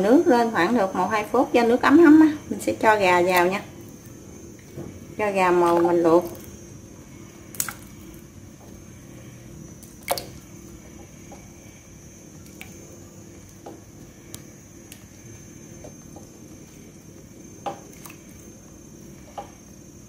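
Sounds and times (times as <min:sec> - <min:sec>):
faint steady hum: 0:00.0 - 0:20.0
chicken splashing into water: 0:07.5 - 0:08.0, 0:09.8 - 0:10.5
small ticks: 0:12.4 - 0:19.7.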